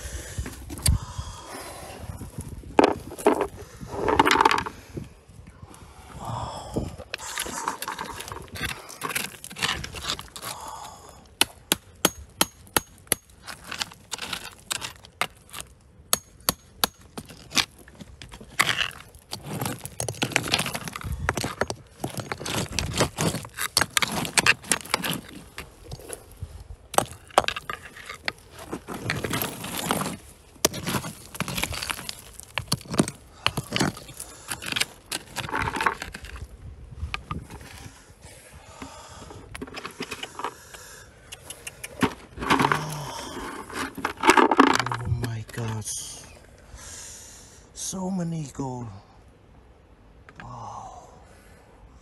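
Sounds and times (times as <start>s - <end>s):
dirt and gravel scraping: 1.5s - 5.2s, 6.6s - 11.0s, 12.7s - 40.8s, 41.4s - 46.4s.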